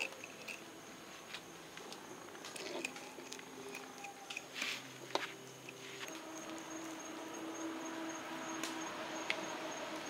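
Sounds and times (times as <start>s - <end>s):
knife scraping: 2.4s - 6.2s.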